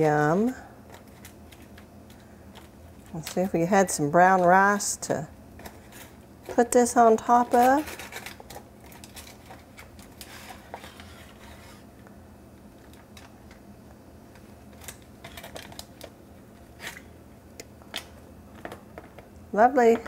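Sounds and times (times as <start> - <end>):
aluminium foil crinkling: 0.2 - 11.8, 14.7 - 17.1.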